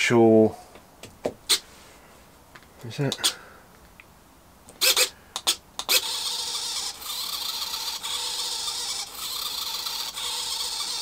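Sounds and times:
sharp clicks: 0:04.7 - 0:06.2
servo whirring: 0:04.8 - 0:11.0.

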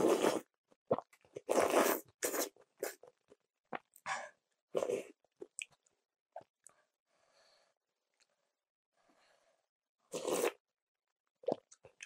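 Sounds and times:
slurping noodles: 0:00.0 - 0:03.0, 0:10.1 - 0:10.6.

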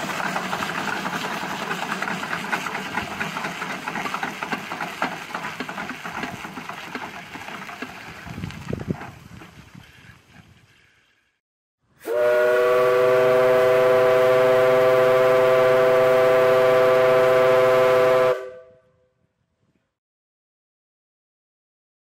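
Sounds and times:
steam whistle chord: 0:12.0 - 0:19.0.

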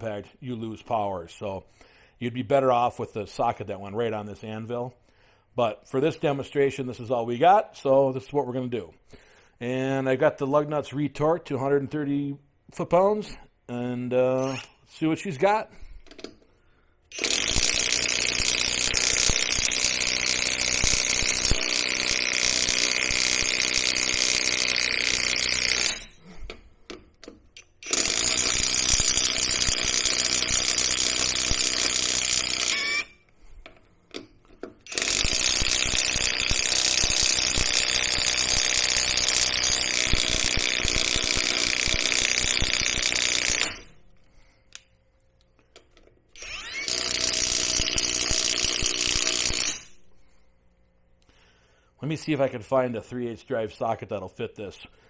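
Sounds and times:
impact wrench hammering: 0:17.1 - 0:33.0, 0:33.6 - 0:44.0, 0:46.4 - 0:50.0.

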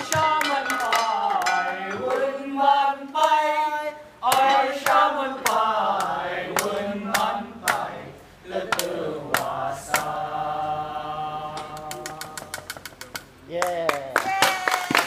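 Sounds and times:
voices chanting a melody: 0:00.0 - 0:12.8
sharp percussive clicks: 0:11.6 - 0:13.3.

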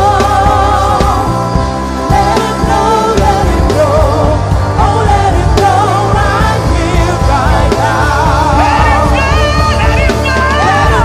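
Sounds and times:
person singing gospel: 0:00.0 - 0:11.0
steady bass: 0:00.0 - 0:11.0.

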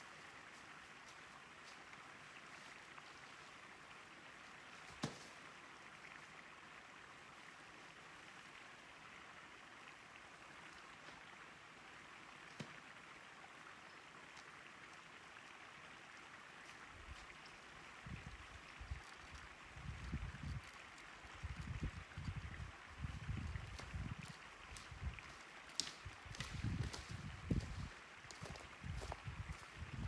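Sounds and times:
faint outdoor hiss: 0:00.0 - 0:30.0.

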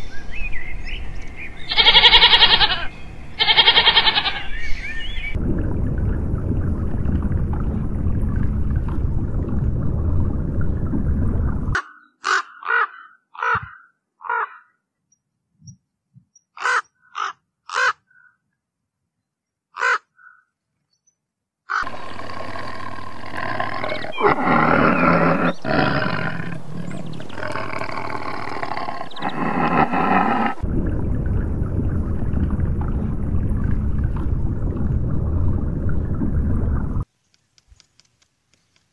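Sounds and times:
rook cawing: 0:01.7 - 0:04.6, 0:12.0 - 0:14.8, 0:16.6 - 0:18.4, 0:19.7 - 0:20.5, 0:21.7 - 0:24.7
steady low rumble: 0:05.3 - 0:11.8, 0:21.8 - 0:37.0.

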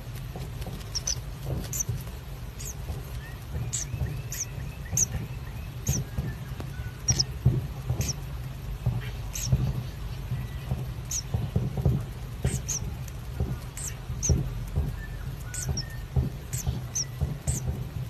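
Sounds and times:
soft thumps: 0:00.0 - 0:08.2, 0:08.8 - 0:18.0
steady low hum: 0:00.0 - 0:18.0
kingfisher high squeaks: 0:00.9 - 0:01.9, 0:11.1 - 0:11.3, 0:12.5 - 0:12.8, 0:13.8 - 0:14.3, 0:15.5 - 0:17.6.

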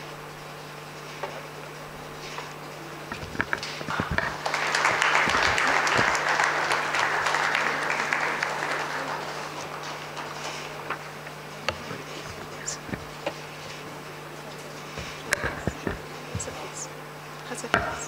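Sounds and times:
audience applause: 0:03.1 - 0:13.1.

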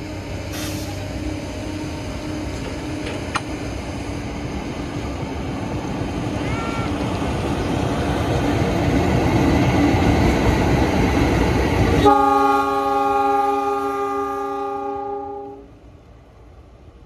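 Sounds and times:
locomotive air horn blast: 0:12.0 - 0:15.7.

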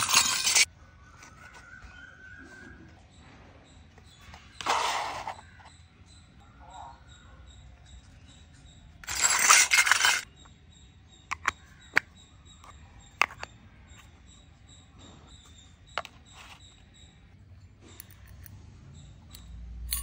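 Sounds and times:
plastic toy handling noise: 0:00.0 - 0:01.7, 0:09.0 - 0:10.3
plastic lids clicking: 0:11.3 - 0:12.1.

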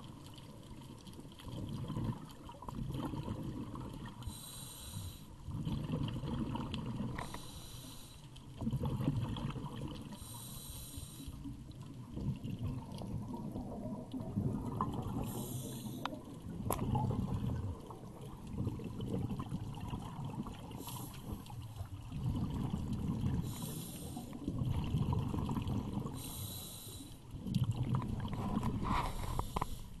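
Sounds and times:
regulator inhalation hiss: 0:04.3 - 0:05.3, 0:07.2 - 0:08.3, 0:10.2 - 0:11.4, 0:15.2 - 0:16.1, 0:23.4 - 0:24.4, 0:26.2 - 0:27.2, 0:29.1 - 0:30.0
rumbling bubble bursts: 0:05.5 - 0:07.1, 0:12.0 - 0:15.3, 0:16.4 - 0:20.8, 0:21.4 - 0:23.6, 0:24.5 - 0:26.2, 0:27.4 - 0:29.4.

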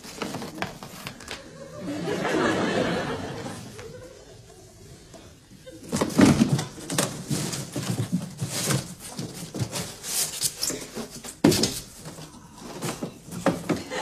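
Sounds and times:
cardboard box rustling: 0:00.0 - 0:01.4, 0:05.8 - 0:13.8
packing crinkles and scrapes: 0:00.0 - 0:01.4, 0:05.8 - 0:13.8.

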